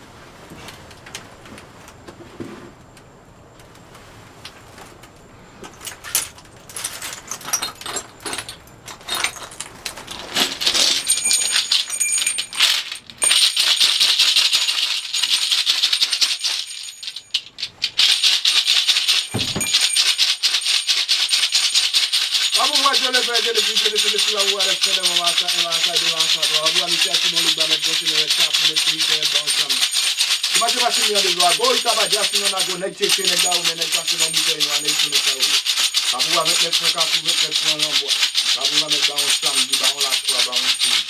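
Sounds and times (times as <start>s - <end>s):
hand rattle shaking: 5.8s - 41.0s
thin high ringing tone: 11.0s - 12.6s, 19.3s - 20.1s.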